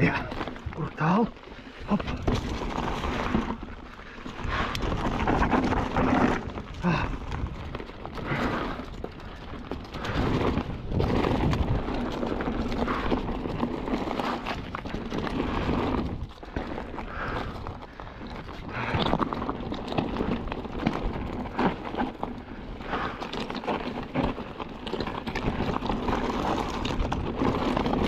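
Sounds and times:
bike clattering and rattling: 0.0 - 28.0
tyres crunching over stones: 0.0 - 28.0
wind rush on microphone: 4.4 - 21.8.

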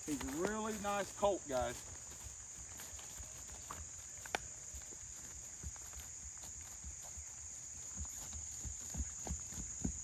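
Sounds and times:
footfalls on grass: 0.0 - 10.0
high-pitched insect chorus: 0.0 - 10.0.

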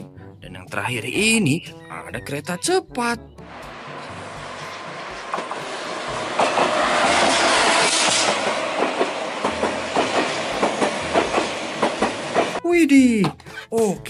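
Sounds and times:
train rushing past: 3.4 - 12.6
wheels clacking over rail joints: 4.7 - 12.6.

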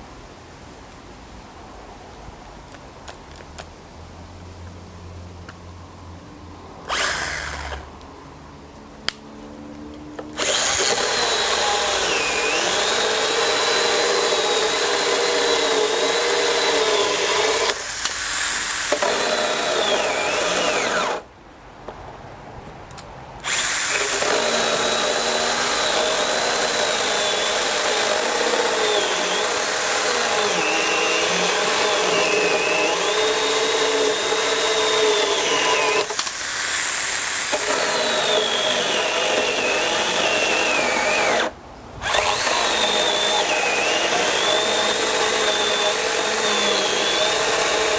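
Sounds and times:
battery saw cutting wood: 6.9 - 7.9, 10.2 - 21.3, 23.4 - 47.9.

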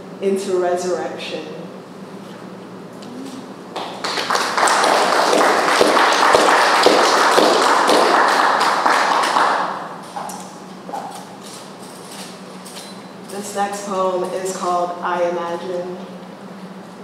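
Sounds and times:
small audience applauding: 3.7 - 10.0.

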